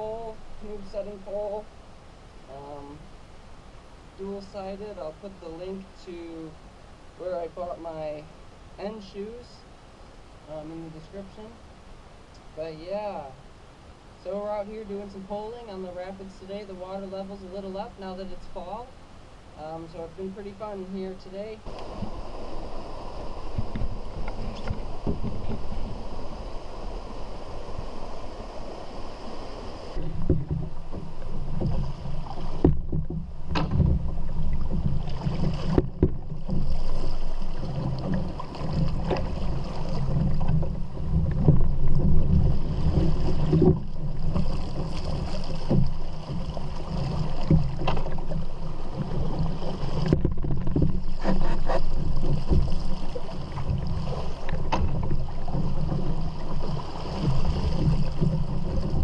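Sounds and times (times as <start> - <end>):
steady low rumble: 0.0 - 51.2
rushing river water: 0.0 - 59.0
pole knocking on rocks: 30.0 - 31.9, 32.5 - 36.7.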